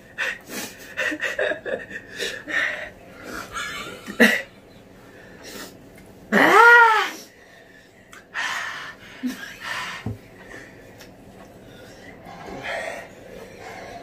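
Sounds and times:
hissing breaths and sniffing: 5.1 - 6.0, 7.6 - 14.0.

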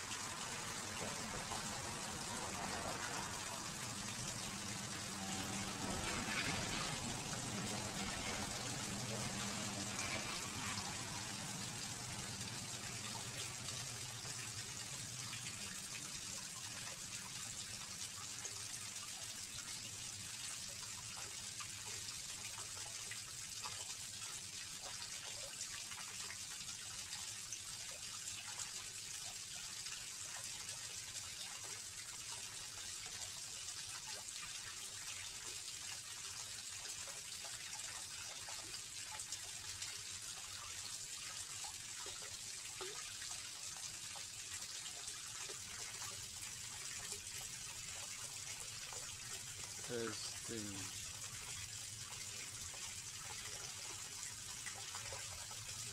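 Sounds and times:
waterfall splashing over rocks: 49.1 - 51.3.

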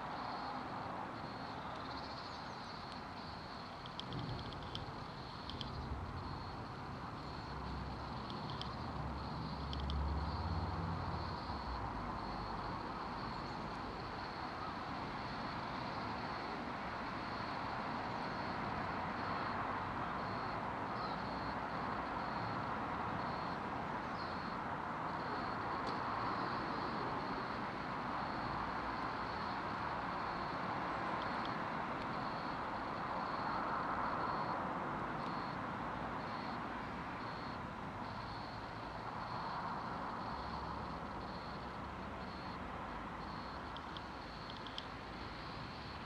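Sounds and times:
hiss-like background noise: 0.0 - 46.0.

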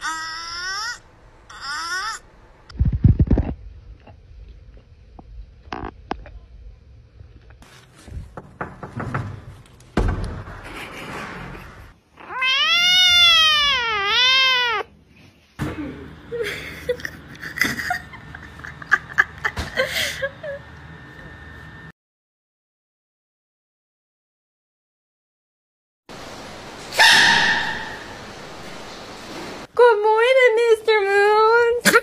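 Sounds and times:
kitten meowing: 12.2 - 14.9.

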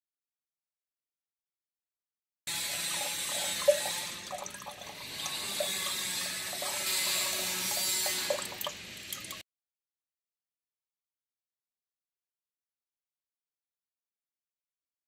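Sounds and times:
water pouring into glass carafe: 2.5 - 9.4.

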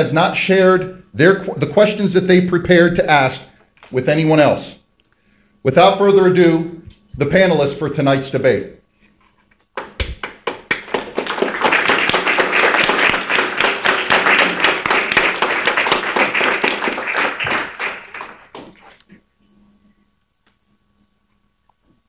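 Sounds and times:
audience applauding: 9.8 - 19.0.

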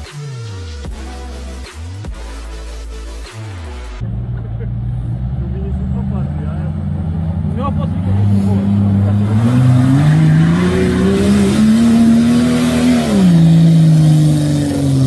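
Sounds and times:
suv engine revving: 4.0 - 15.0.

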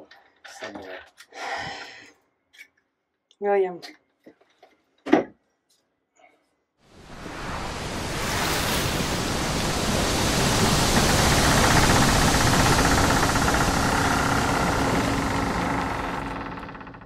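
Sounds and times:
steady rushing noise: 6.9 - 17.0.

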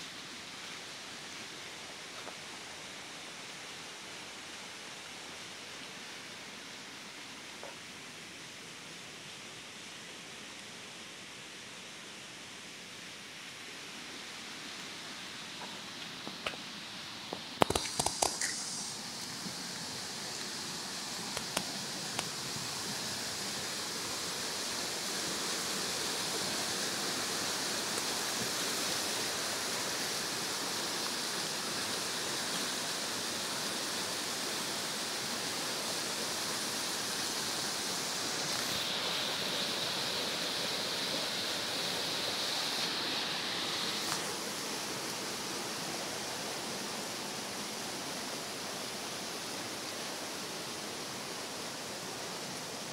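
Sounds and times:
river water rushing: 12.2 - 52.9
sharp clicks and knocks: 17.6 - 18.6.

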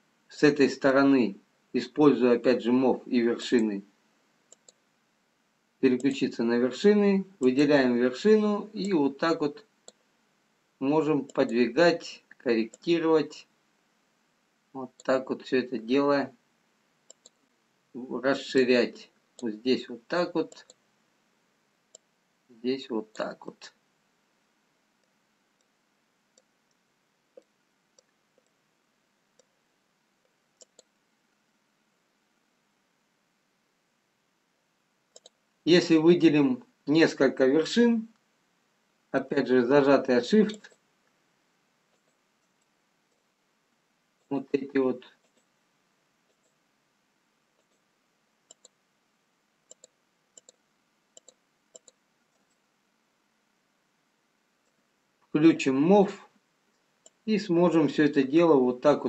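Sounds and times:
computer mouse clicks: 4.5 - 4.8, 9.8 - 10.0, 12.7 - 12.9, 17.1 - 17.4, 20.4 - 20.8, 25.0 - 28.6, 29.4 - 29.6, 30.2 - 31.0, 35.1 - 35.4, 40.5 - 40.8, 41.9 - 43.3, 45.2 - 45.5, 46.3 - 46.6, 47.6 - 47.8, 48.4 - 48.8, 49.6 - 52.6.

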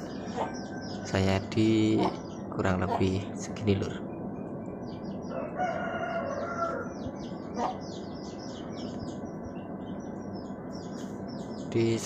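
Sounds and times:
chicken calling: 0.0 - 1.2, 5.3 - 8.1
birds chirping: 0.0 - 12.0
steady background noise: 0.0 - 12.0.

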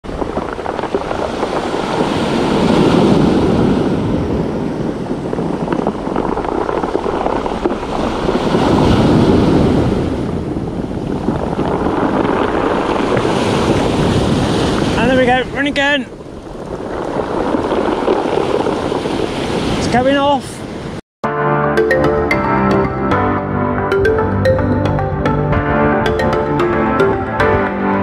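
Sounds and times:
wind buffeting microphone: 0.0 - 21.0
waves breaking on pebble beach: 0.1 - 21.0.

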